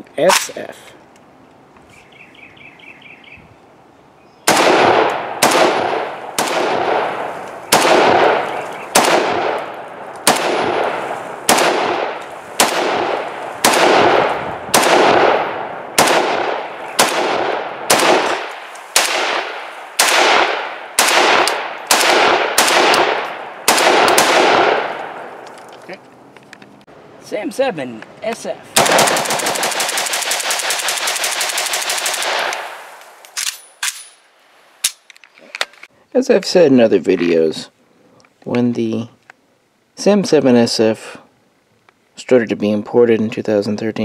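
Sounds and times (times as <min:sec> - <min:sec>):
rifle shots: 0:04.4 - 0:25.4, 0:28.8 - 0:34.2.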